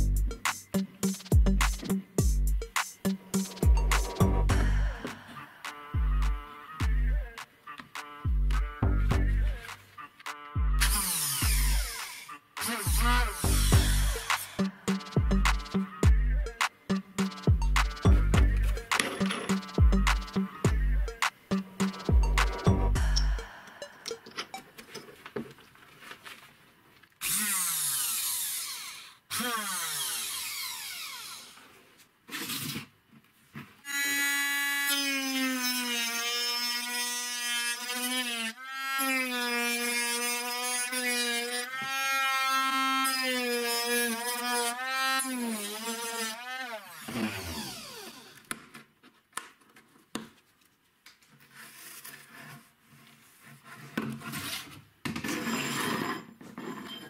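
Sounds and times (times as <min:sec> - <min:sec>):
cutting disc cutting a tube: 0:09.5 - 0:16.0, 0:27.2 - 0:31.6, 0:33.9 - 0:48.6
rotary tool motor whining: 0:10.8 - 0:14.6, 0:27.2 - 0:31.7, 0:33.9 - 0:48.5.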